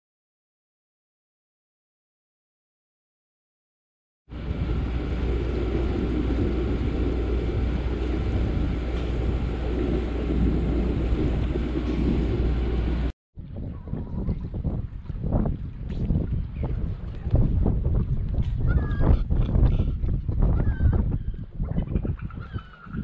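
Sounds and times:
boat engine droning: 4.3 - 13.1
gusty wind: 4.3 - 23.0.

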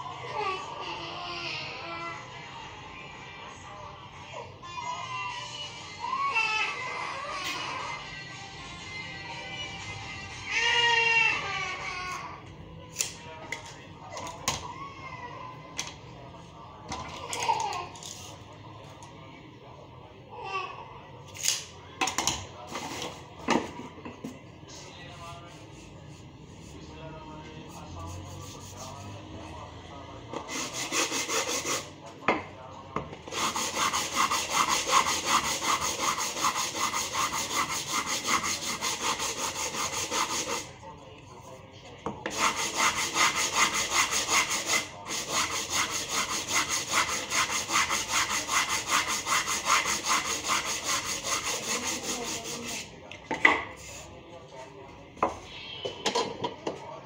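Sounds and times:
hand sanding wood: 30.5 - 31.9, 33.3 - 40.7, 42.3 - 52.9.

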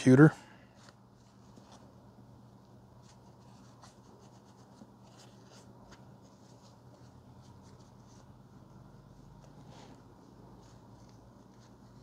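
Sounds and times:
low steady hum: 0.0 - 12.0
cloth rubbing strokes: 0.7 - 12.0.

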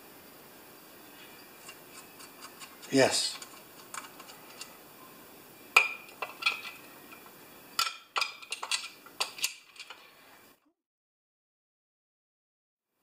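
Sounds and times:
metal parts clicking and tapping: 1.7 - 4.8, 6.1 - 10.1.

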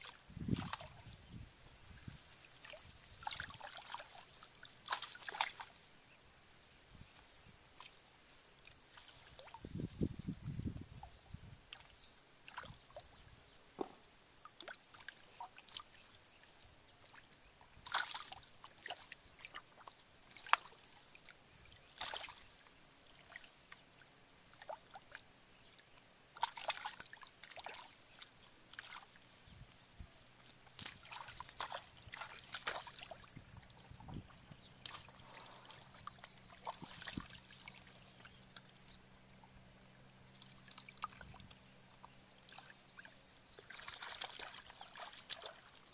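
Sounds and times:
hands splashing in muddy water: 0.0 - 1.1, 2.6 - 5.7, 30.7 - 33.5, 34.8 - 38.0, 43.6 - 45.9
water trickling: 26.5 - 45.9.

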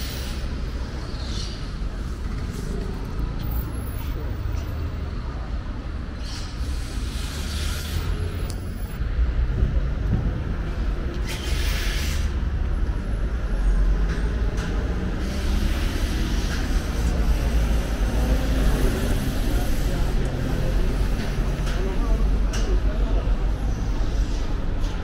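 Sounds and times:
traffic rumble: 0.0 - 25.0
brief air brake hisses: 11.2 - 12.4.

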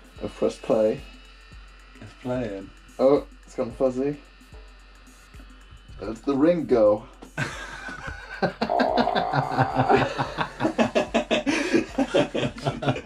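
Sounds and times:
people laughing: 7.4 - 13.0.

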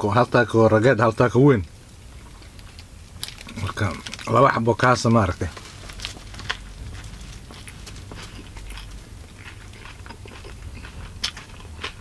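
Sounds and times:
low steady hum: 0.0 - 12.0
person chewing food: 2.1 - 4.4, 5.5 - 12.0.

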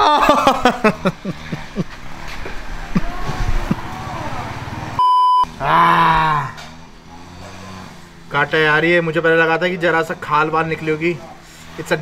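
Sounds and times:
man laughing: 0.0 - 2.0, 2.8 - 4.5
censor bleep: 5.0 - 5.5.

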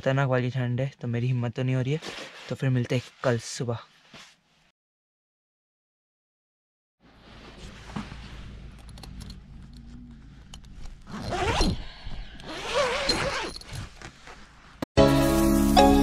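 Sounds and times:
bedding and tent fabric rustling: 7.0 - 8.8, 12.6 - 14.8
tent zipper pulled open: 10.8 - 14.4.

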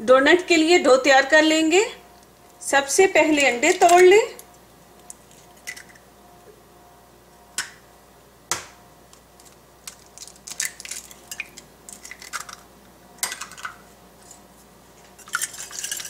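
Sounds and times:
eggshells crackling: 9.4 - 13.8.

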